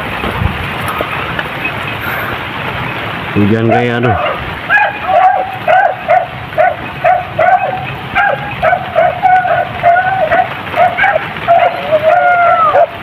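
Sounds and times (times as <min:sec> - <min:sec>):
dogs barking: 0:03.5 - 0:13.0.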